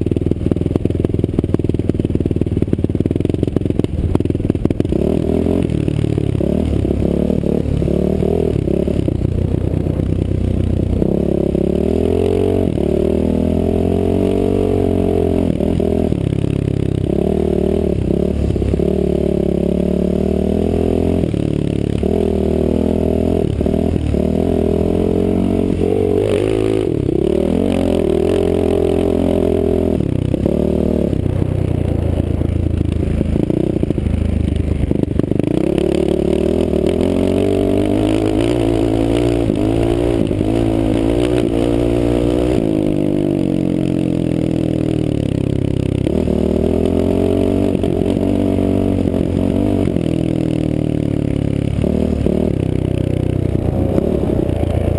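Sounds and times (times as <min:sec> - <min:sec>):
off-road motorcycle engine revving: 0:00.0 - 0:54.9.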